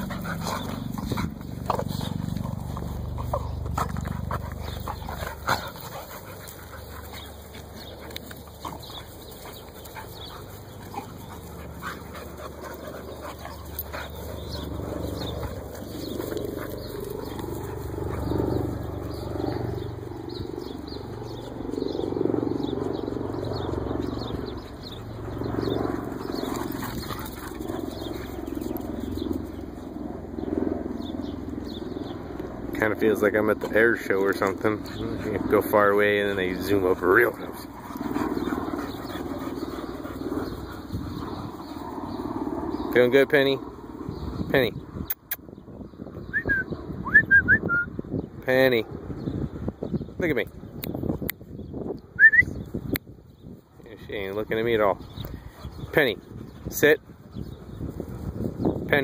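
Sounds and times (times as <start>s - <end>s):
steady low rumble: 0.0s - 33.0s
dogs playing and wrestling: 0.0s - 45.4s, 53.2s - 59.0s.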